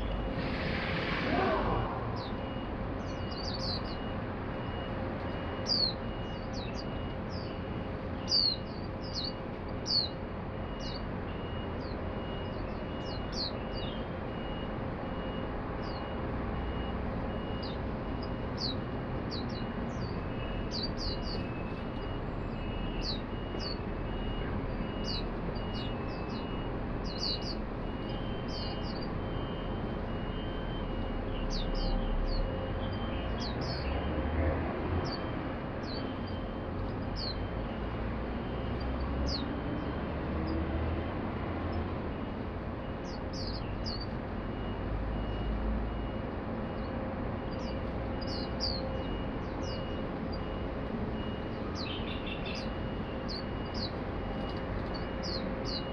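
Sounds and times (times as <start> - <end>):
birds giving thin high calls: 0.0 - 4.8, 8.2 - 10.2, 15.8 - 34.1, 43.0 - 45.5, 46.8 - 50.0, 51.4 - 55.9
low hum of city background: 0.0 - 55.9.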